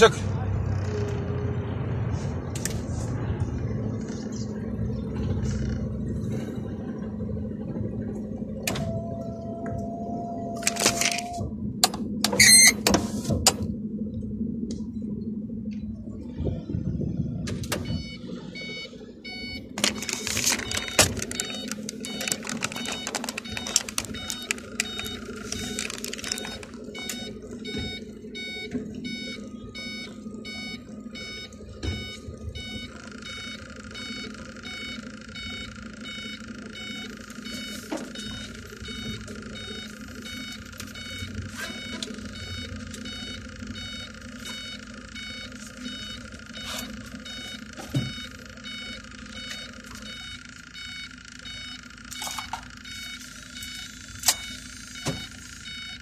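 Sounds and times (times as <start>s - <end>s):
low steady hum: 0.0s - 56.0s
electronic beeping: 16.4s - 56.0s.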